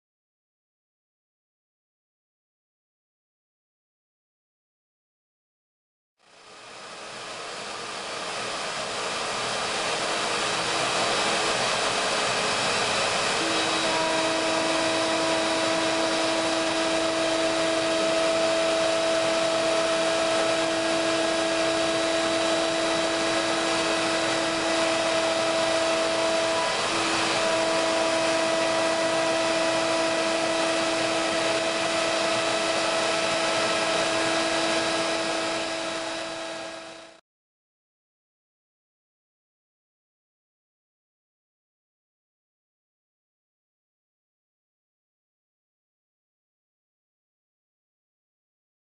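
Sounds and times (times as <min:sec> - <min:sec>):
router spindle whirring: 0:06.3 - 0:37.2.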